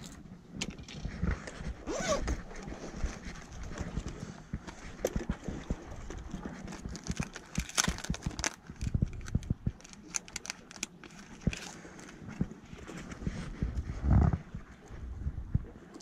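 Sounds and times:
rummaging in a soft bag: 0.8 - 4.2, 6.4 - 13.3
plastic crinkling: 6.7 - 12.1.

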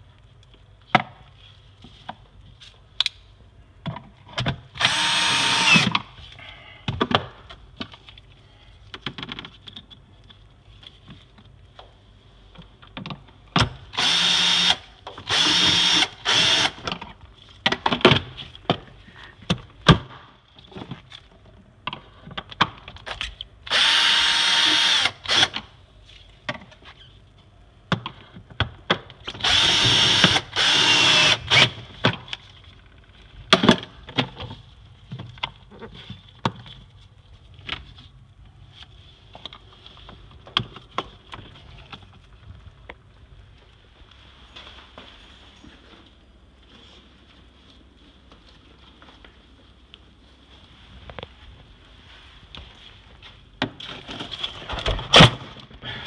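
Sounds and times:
cordless drill whining: 4.8 - 5.9, 14.0 - 16.8, 23.7 - 25.6, 29.4 - 31.8.

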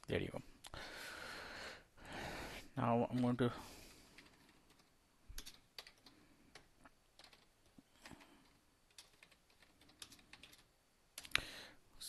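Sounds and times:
keyboard typing: 3.0 - 3.4, 4.0 - 11.4.

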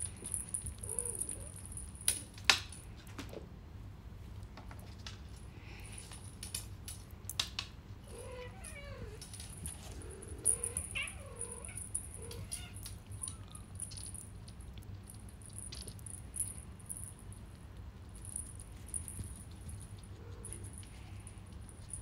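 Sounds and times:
high jingling rattle: 0.0 - 2.4, 9.2 - 22.0
kitten mewing: 0.8 - 1.6, 9.8 - 13.7.

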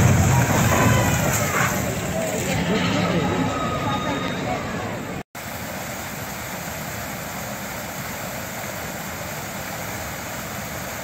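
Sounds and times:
stream rushing over rocks: 5.4 - 11.0.

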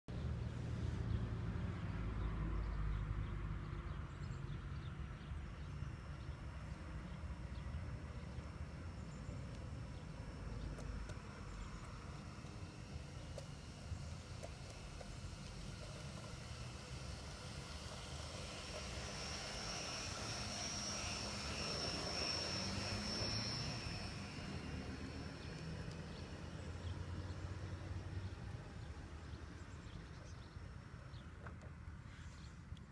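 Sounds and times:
faint high whine: 4.3 - 32.9
model train rumbling: 5.4 - 31.4
faint clicks of train on track: 10.6 - 12.6, 25.5 - 26.2, 31.3 - 32.9.

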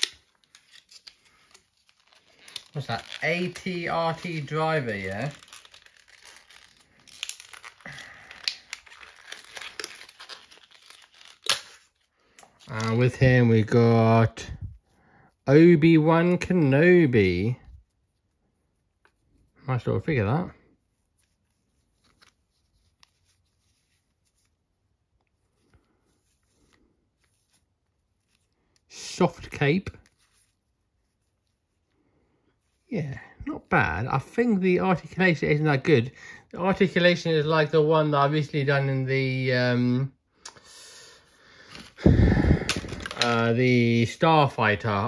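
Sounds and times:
fabric cape rustling: 0.0 - 11.7, 41.6 - 43.4
plastic packaging crinkling: 0.0 - 13.4, 41.6 - 44.0.

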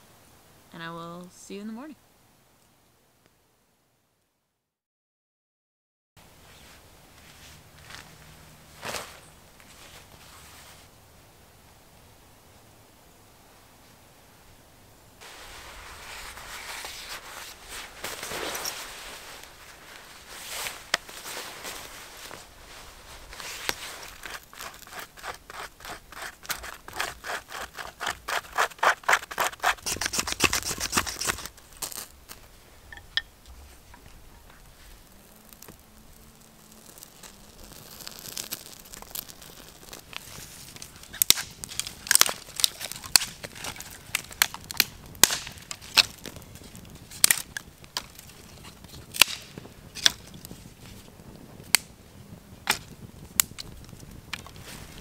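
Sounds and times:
rapid scraping strokes: 15.2 - 32.1
campfire crackling and popping: 15.2 - 55.0.

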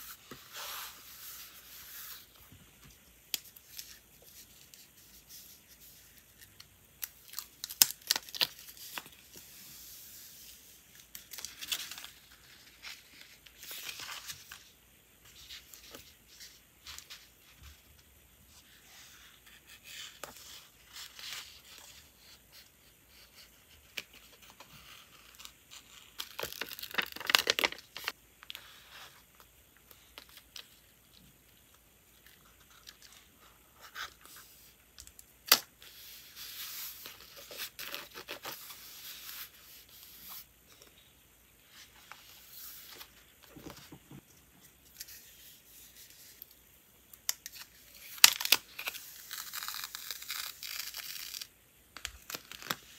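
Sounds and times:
tape peeling and tearing: 24.8 - 28.1, 47.3 - 51.5, 52.2 - 52.9.

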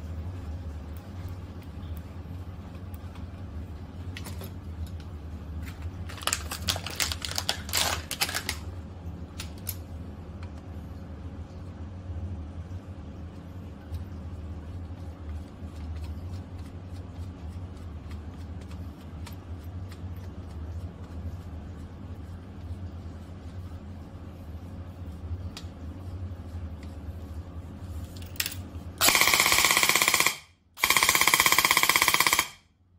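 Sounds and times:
steady low hum: 0.0 - 32.9
airsoft rifle full-auto bursts: 29.0 - 32.6.

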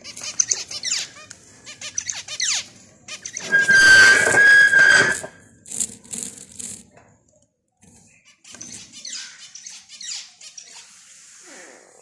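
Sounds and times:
high-pitched squeal: 3.4 - 5.4.

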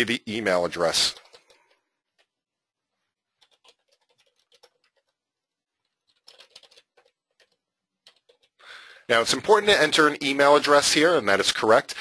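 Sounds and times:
faint computer keyboard typing: 1.0 - 2.4, 3.2 - 8.6.

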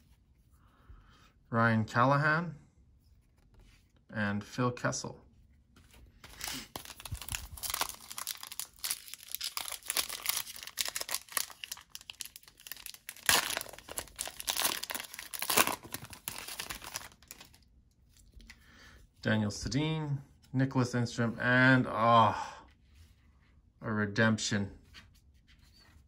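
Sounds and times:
foil wrapper tearing and crinkling: 6.2 - 17.6.

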